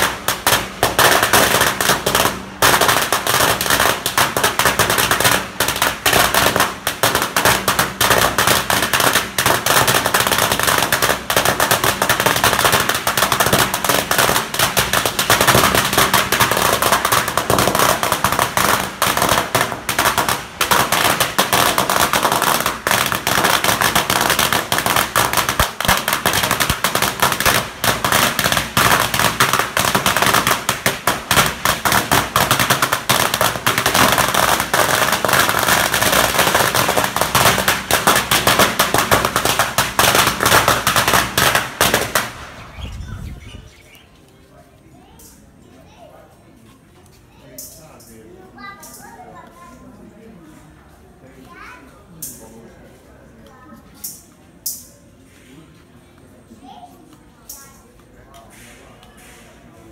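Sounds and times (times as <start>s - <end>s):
firecrackers crackling: 0.0s - 44.4s, 57.5s - 59.9s.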